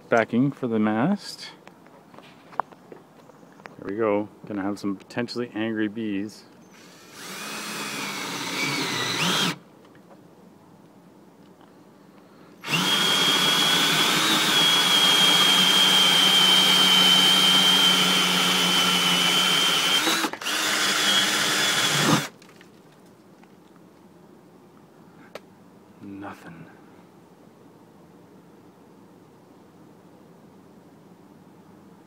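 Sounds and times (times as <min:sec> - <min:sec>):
power drill boring through wood: 0:06.7 - 0:09.6, 0:12.6 - 0:22.3.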